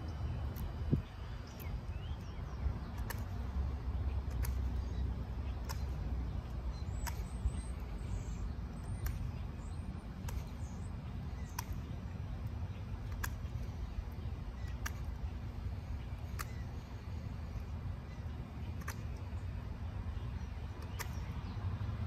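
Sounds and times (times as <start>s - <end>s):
wind rumble on microphone: 0.0s - 16.7s.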